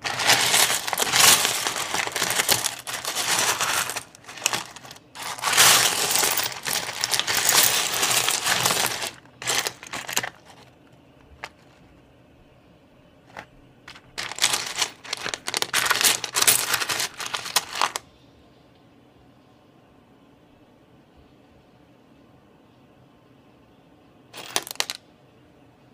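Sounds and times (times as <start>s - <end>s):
stones clattering and clicking: 0.0s - 10.7s, 11.3s - 11.8s, 13.3s - 18.0s, 24.4s - 25.0s.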